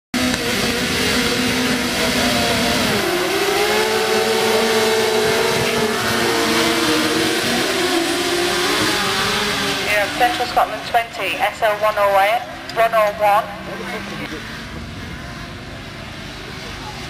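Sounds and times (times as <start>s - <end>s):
racing car engines revving: 0.1s - 17.0s.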